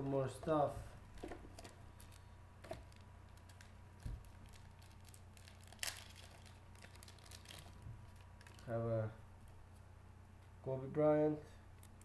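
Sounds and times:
faint steady hum: 0:00.0 - 0:12.0
packaging rustling: 0:01.1 - 0:08.7
loud crinkling rustle: 0:02.8 - 0:08.7.

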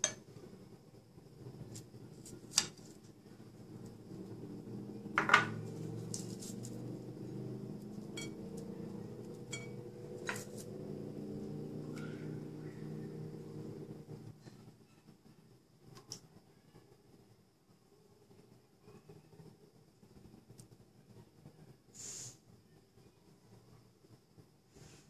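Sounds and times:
low steady hum: 0:00.0 - 0:21.8
metal spoon clinking on plate: 0:08.1 - 0:08.7, 0:09.4 - 0:10.6.

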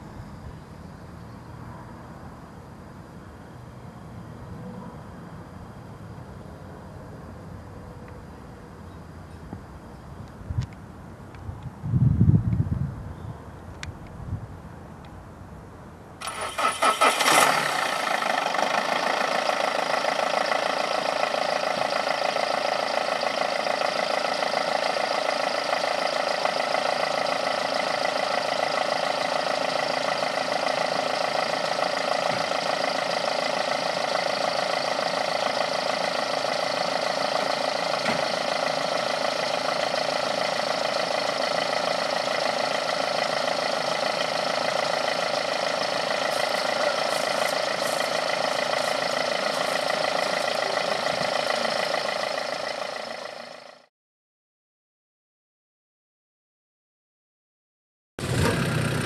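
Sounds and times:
car engine starting and idling: 0:16.2 - 0:53.9, 0:58.2 - 0:59.0.

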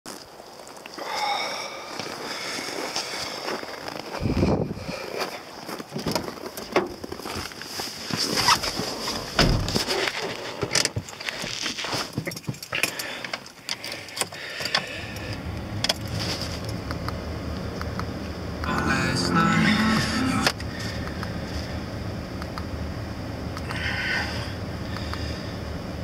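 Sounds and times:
low steady hum: 0:13.8 - 0:26.0.

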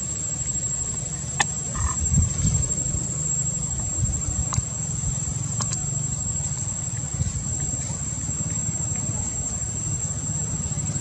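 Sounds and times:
high-pitched insect drone: 0:00.0 - 0:11.0
low rumble: 0:00.0 - 0:11.0
faint clicks: 0:05.5 - 0:07.1.

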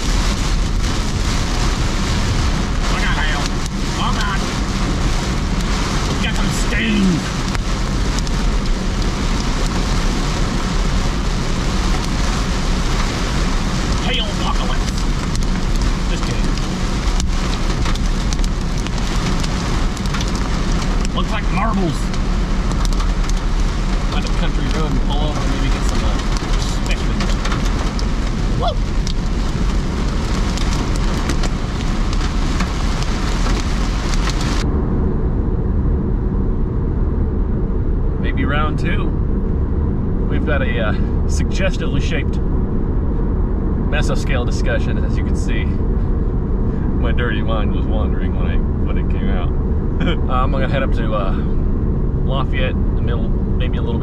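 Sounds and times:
road hiss: 0:00.0 - 0:34.6
car engine and tyres rumbling: 0:00.0 - 0:54.0.

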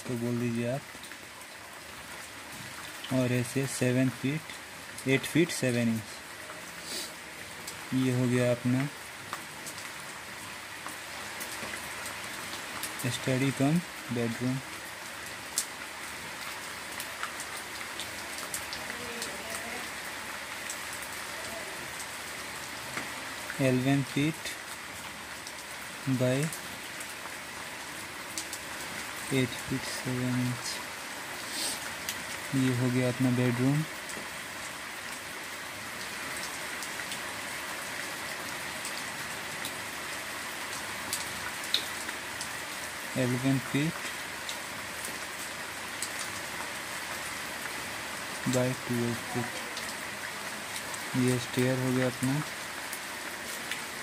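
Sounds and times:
background hiss: 0:00.0 - 0:54.0
steady hiss: 0:03.1 - 0:09.0, 0:22.9 - 0:24.7, 0:27.8 - 0:34.3.

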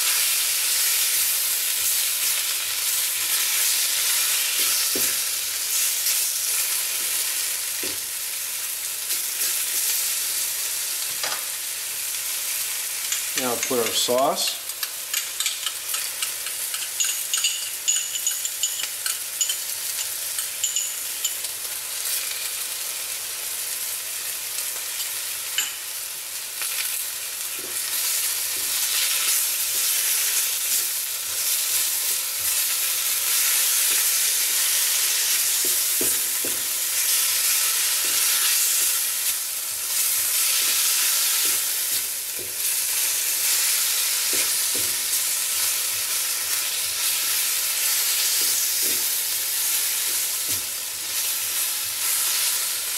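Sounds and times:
food sizzling in a wok: 0:00.0 - 0:52.9
utensil clinking against wok: 0:13.0 - 0:21.5, 0:25.0 - 0:25.8.

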